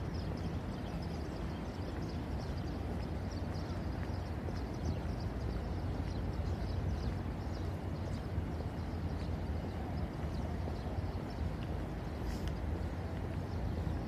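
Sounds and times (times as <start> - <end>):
faint high chirps and ticks: 0.0 - 14.0
steady low rumble: 0.0 - 14.0.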